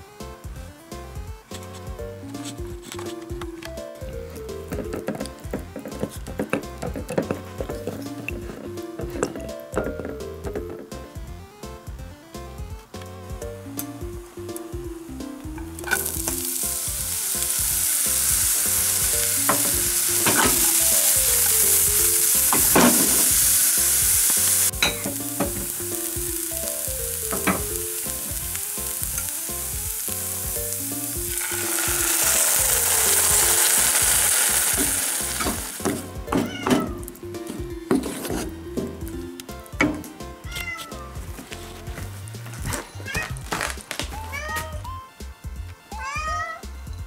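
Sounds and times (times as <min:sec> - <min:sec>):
onions sizzling in a frying pan: 0:14.1 - 0:36.2
wooden spatula scraping a pan: 0:37.9 - 0:38.6.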